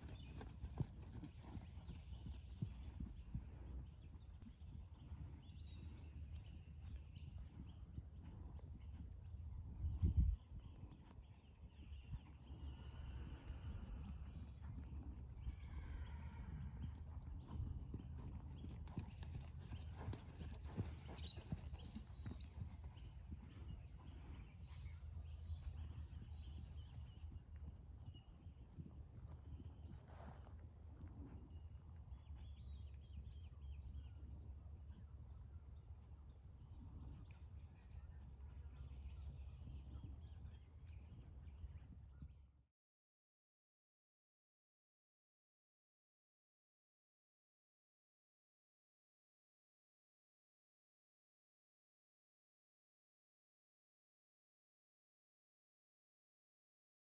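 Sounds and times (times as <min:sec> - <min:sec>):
hoofbeats on sand: 0:00.0 - 0:09.2, 0:10.6 - 0:33.9.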